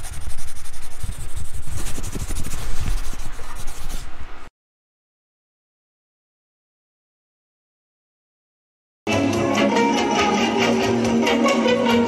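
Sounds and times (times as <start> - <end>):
brush scratching on paper: 0.0 - 4.2.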